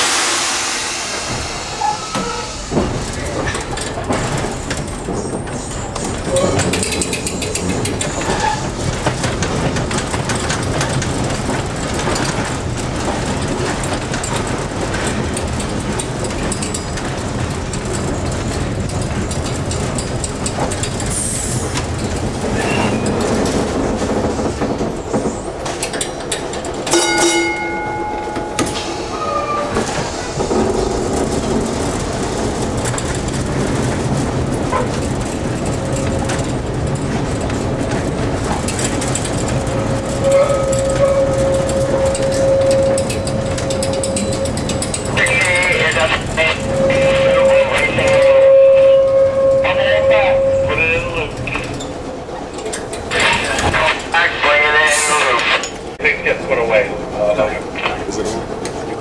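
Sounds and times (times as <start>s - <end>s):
high squeal: 0.0s - 3.3s, 28.5s - 30.1s, 40.2s - 51.1s
streetcar wheels on rails: 0.0s - 59.0s.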